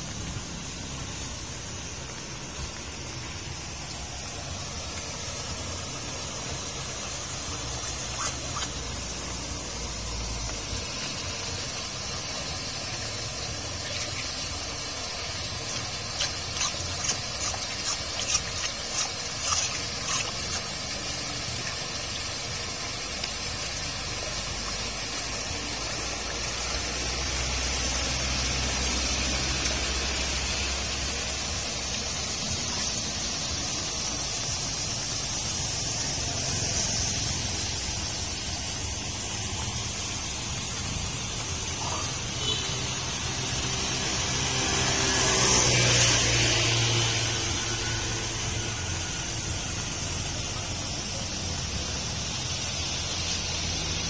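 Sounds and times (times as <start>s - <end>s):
water rushing through drain grate: 0.0s - 54.0s.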